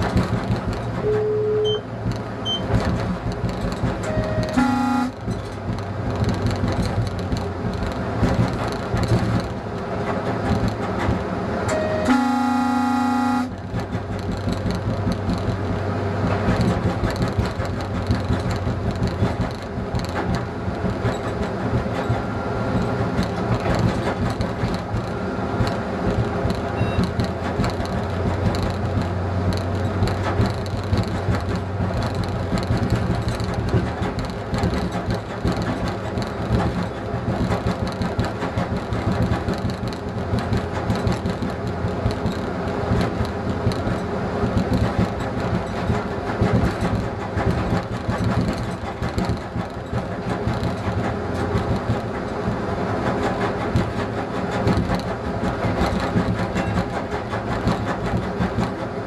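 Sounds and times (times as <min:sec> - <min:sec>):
diesel railcar engine humming: 0:00.0 - 0:59.0
wheels running on rails: 0:00.0 - 0:59.0
train horn: 0:01.0 - 0:01.8, 0:04.1 - 0:05.3, 0:11.7 - 0:13.6.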